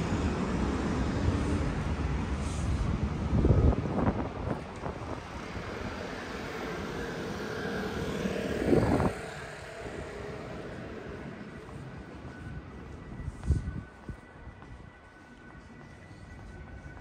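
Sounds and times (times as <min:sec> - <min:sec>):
engine drone: 0:00.0 - 0:13.3
cars passing: 0:00.0 - 0:13.6.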